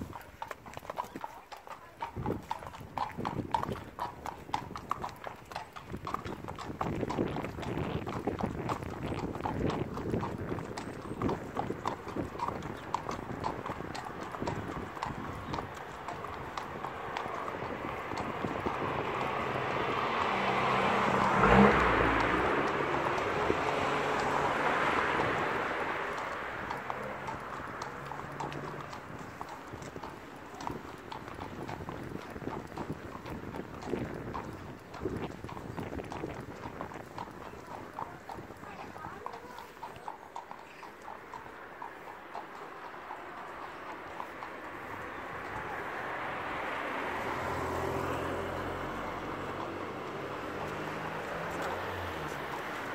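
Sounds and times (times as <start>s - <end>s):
hooves clip-clopping on tarmac: 0.0s - 52.9s
vehicle passing: 1.9s - 52.9s.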